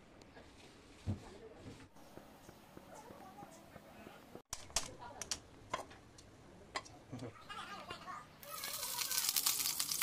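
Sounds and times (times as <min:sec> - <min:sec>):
oil sizzling in a hot pot: 0:08.4 - 0:10.0.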